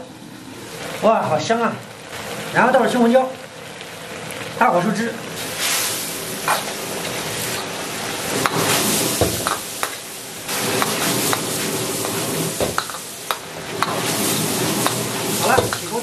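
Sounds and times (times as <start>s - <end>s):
sauce bubbling and sizzling: 0.0s - 16.0s
knocks against wok: 9.2s - 10.0s, 12.6s - 14.0s, 14.8s - 15.9s.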